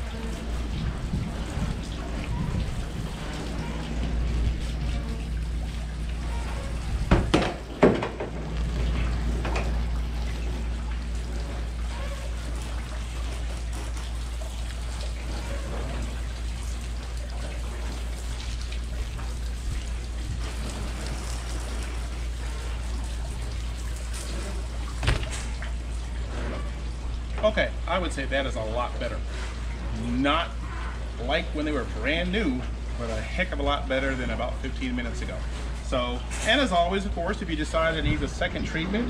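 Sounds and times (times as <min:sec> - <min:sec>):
water spraying from hose nozzle: 0:00.0 - 0:26.7
water splashing off plastic: 0:00.0 - 0:27.5
steady low hum: 0:00.0 - 0:36.4.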